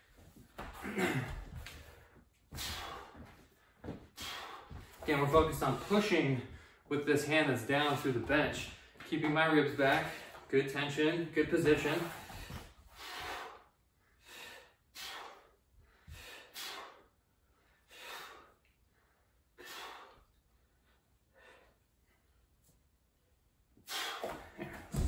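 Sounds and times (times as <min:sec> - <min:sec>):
noisy breaths in and out: 0:00.0 - 0:07.0, 0:09.8 - 0:10.5, 0:11.7 - 0:22.8, 0:23.7 - 0:25.0.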